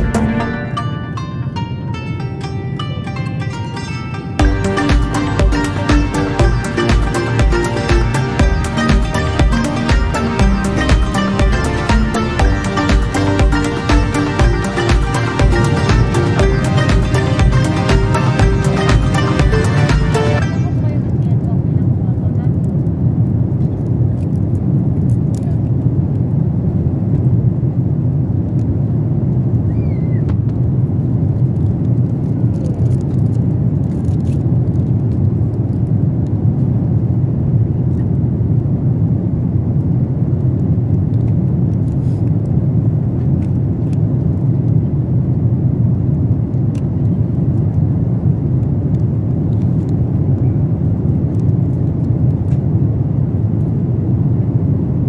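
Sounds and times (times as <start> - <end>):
airliner cabin noise: 0.0 - 27.2.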